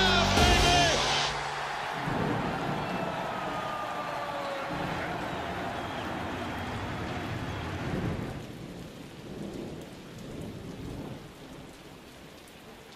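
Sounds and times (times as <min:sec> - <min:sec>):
rain falling: 0:00.8 - 0:12.9
thunder rumbling: 0:01.5 - 0:11.7.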